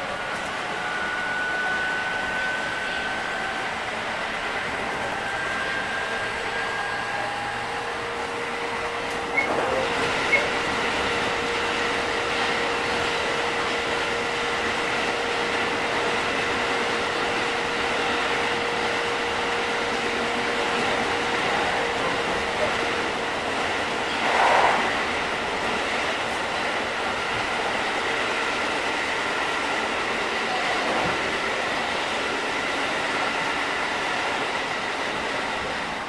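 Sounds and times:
train wheels rumbling on rail: 0:00.0 - 0:36.0.

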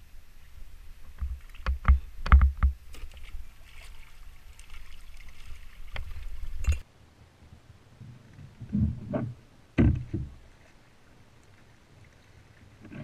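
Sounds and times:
knocks and thumps: 0:08.6 - 0:10.4.

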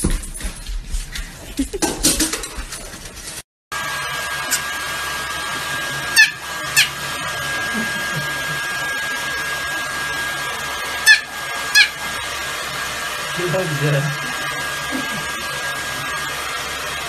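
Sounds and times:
hair dryer running: 0:03.7 - 0:17.0
puppy yelping: 0:06.2 - 0:07.0, 0:11.0 - 0:12.0.

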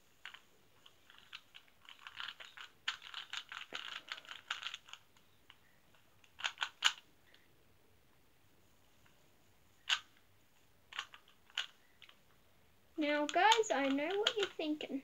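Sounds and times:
puzzle cube clicking: 0:00.2 - 0:07.4, 0:09.8 - 0:10.2, 0:10.9 - 0:12.3, 0:13.2 - 0:14.8.

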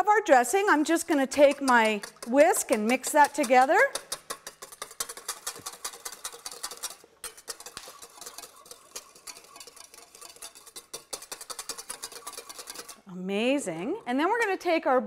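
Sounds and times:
whisk clicking against metal bowl: 0:00.3 - 0:13.1.

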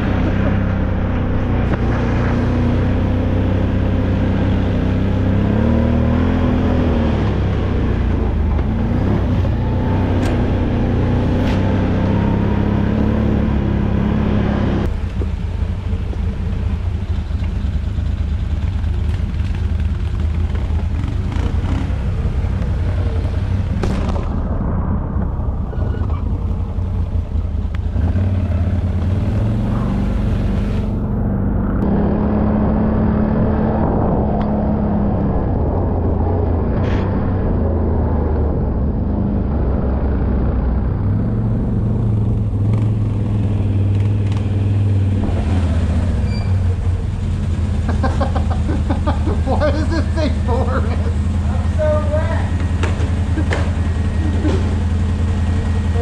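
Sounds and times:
quad bike engine running: 0:00.0 - 0:24.3, 0:40.6 - 0:56.0.

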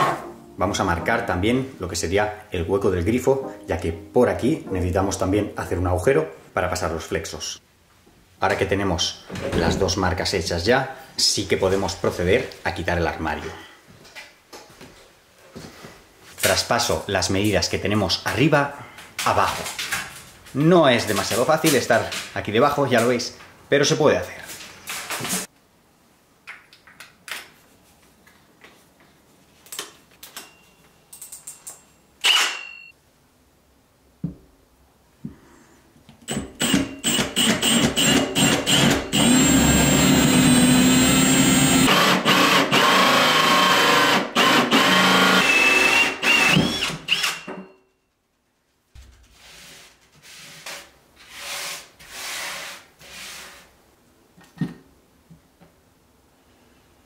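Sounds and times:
drill cutting through wood: 0:36.3 - 0:47.5.

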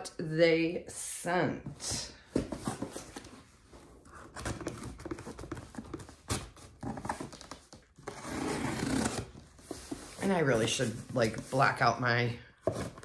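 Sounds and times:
hands handling cardboard box: 0:02.3 - 0:08.2, 0:09.0 - 0:11.6.

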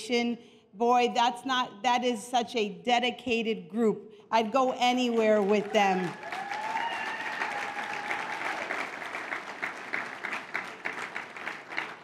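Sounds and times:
audience applauding: 0:05.4 - 0:12.0
person cheering: 0:06.0 - 0:08.8.

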